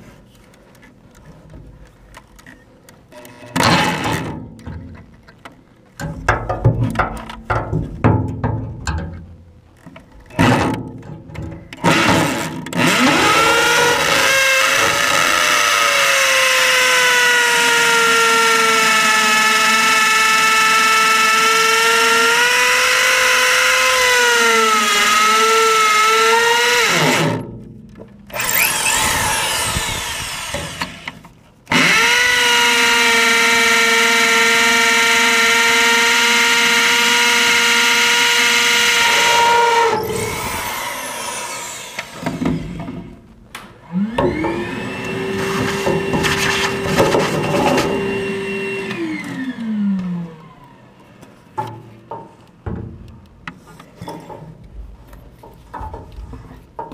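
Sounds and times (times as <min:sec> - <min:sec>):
hammer drill boring into concrete: 0:11.8 - 0:27.4, 0:28.3 - 0:43.0, 0:44.0 - 0:49.8.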